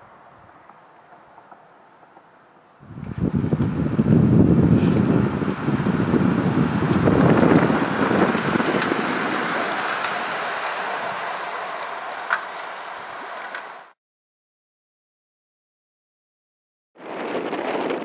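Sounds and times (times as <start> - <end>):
bicycles rolling past: 0.6 - 14.0
wind buffeting microphone: 2.8 - 11.4, 17.0 - 18.0.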